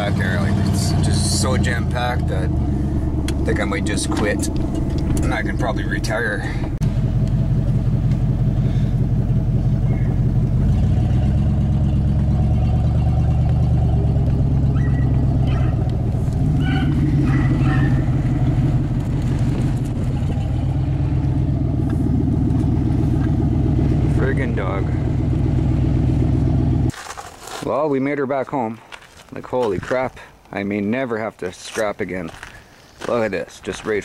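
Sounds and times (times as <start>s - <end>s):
pickup truck engine running: 0.0s - 26.9s.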